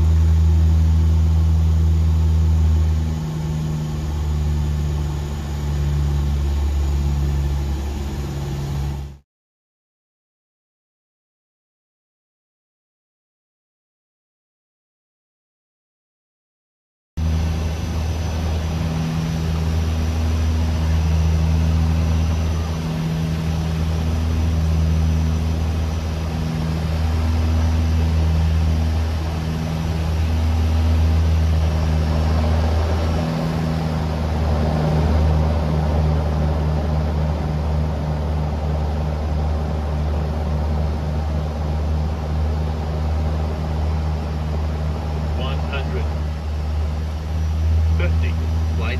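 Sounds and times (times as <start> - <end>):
turboprop cabin drone: 0.0 - 9.2, 17.2 - 48.9.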